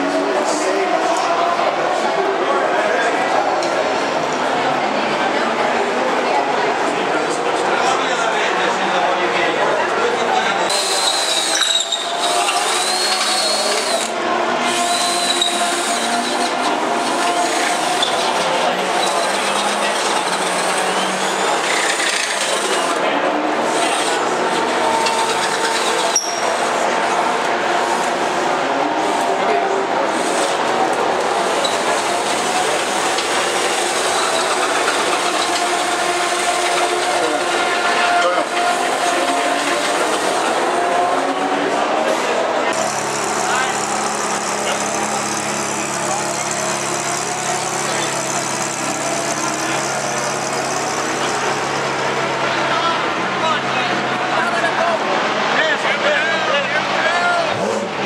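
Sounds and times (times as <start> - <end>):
faint indistinct voices: 0.0 - 58.0
race car engines: 0.0 - 58.0
power drill motor whine: 10.7 - 23.0, 42.7 - 51.7.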